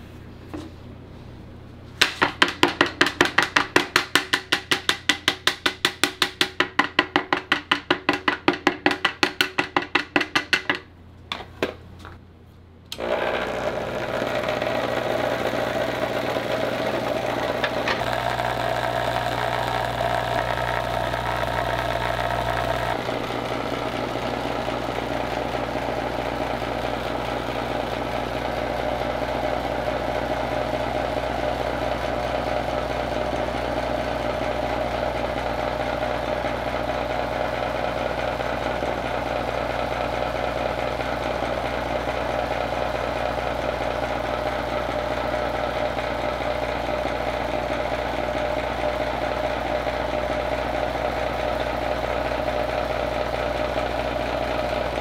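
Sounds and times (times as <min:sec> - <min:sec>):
mould knocking on counter: 0:02.0 - 0:11.8
vibrating plate humming: 0:13.3 - 0:30.0.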